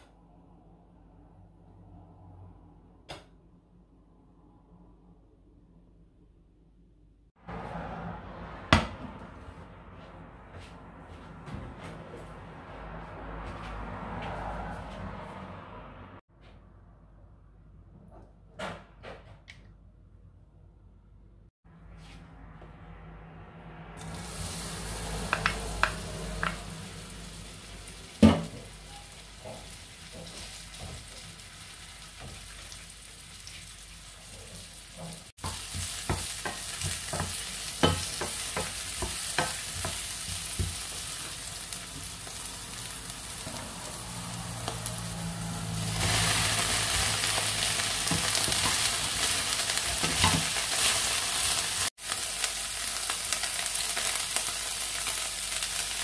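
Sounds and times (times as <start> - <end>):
onion sizzling in oil: 24.0 - 56.0
wooden spoon knocking on pan: 25.3 - 26.6, 35.0 - 40.9.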